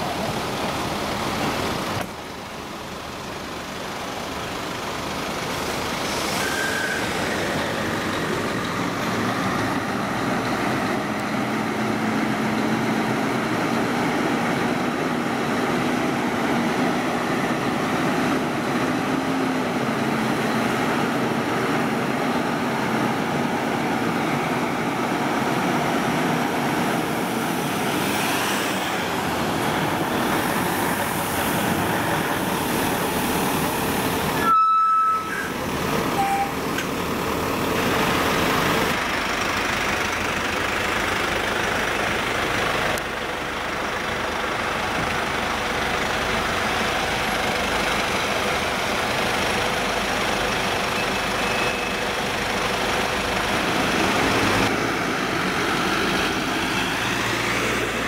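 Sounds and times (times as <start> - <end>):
truck diesel engines running: 0.0 - 58.0
truck horn blast: 34.4 - 35.6.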